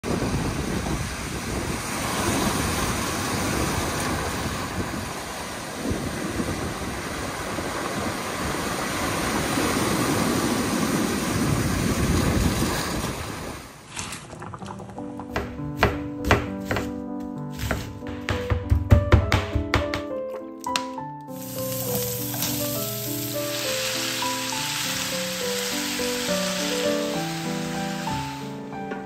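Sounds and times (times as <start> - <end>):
wind on microphone: 0.0 - 13.8
surf washing over stones: 0.0 - 15.0, 21.4 - 28.8.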